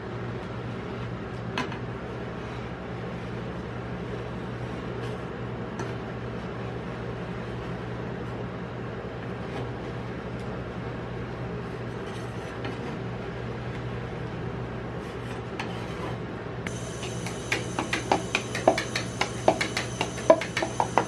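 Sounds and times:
refrigeration unit humming: 0.0s - 21.0s
blade clicking on plate: 17.0s - 21.0s.

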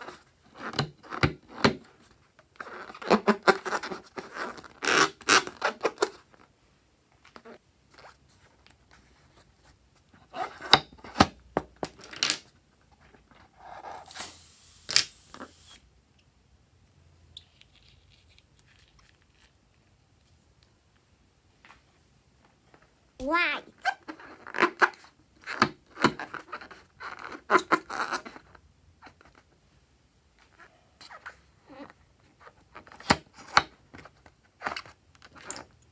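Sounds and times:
squeaks of hands rubbing balloon: 2.6s - 6.4s, 7.4s - 8.1s, 10.2s - 10.8s, 23.4s - 25.6s, 26.2s - 28.6s, 30.5s - 33.1s.

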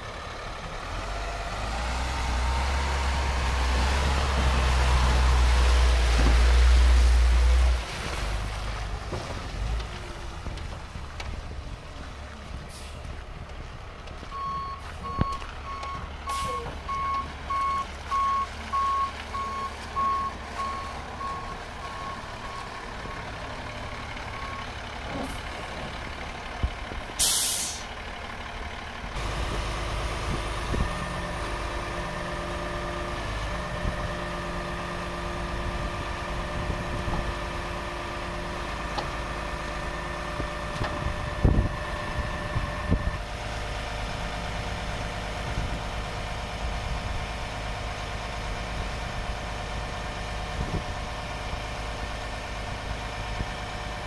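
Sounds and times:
diesel engine idling: 0.0s - 6.1s, 6.7s - 54.0s
truck reverse alarm beeping: 14.3s - 23.4s, 24.2s - 24.8s
air brakes hissing: 27.2s - 27.9s.

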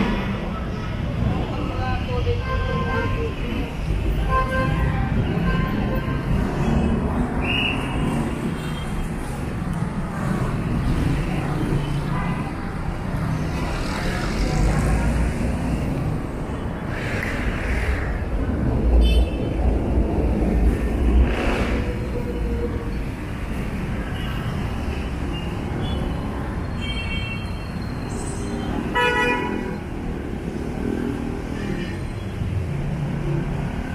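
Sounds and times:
motorcycles passing: 3.0s - 24.0s.

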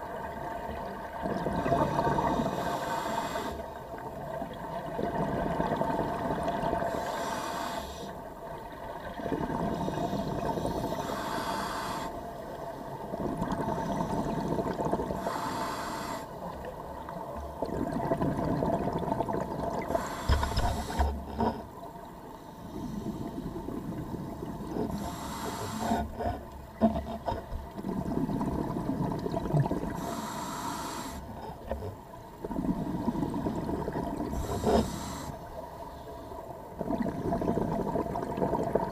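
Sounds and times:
regulator inhale hiss: 1.8s - 3.8s, 6.8s - 8.2s, 9.8s - 12.4s, 15.1s - 16.5s, 19.9s - 21.3s, 22.3s - 23.6s, 24.8s - 26.4s, 30.0s - 31.4s, 34.3s - 36.4s
exhaled bubbles burbling: 13.1s - 15.2s, 17.6s - 19.9s, 26.1s - 30.0s, 32.4s - 34.7s, 36.8s - 38.9s.

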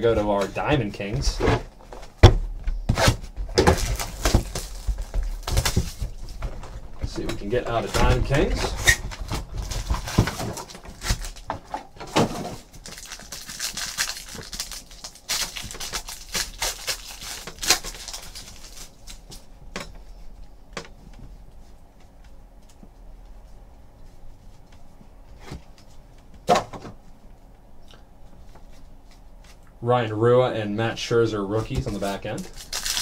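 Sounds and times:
foil wrappers crinkling and tearing: 3.0s - 6.5s, 7.2s - 11.5s, 12.6s - 19.5s, 31.7s - 33.0s.

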